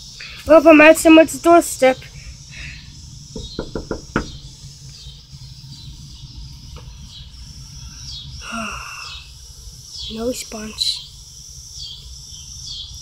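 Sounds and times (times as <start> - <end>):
knuckles knocking on door: 3.3 - 4.4.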